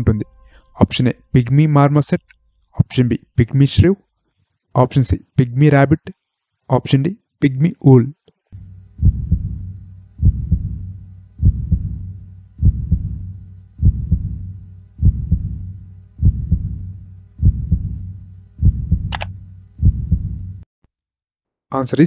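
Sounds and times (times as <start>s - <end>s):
heartbeat double thump: 9.0s - 20.6s.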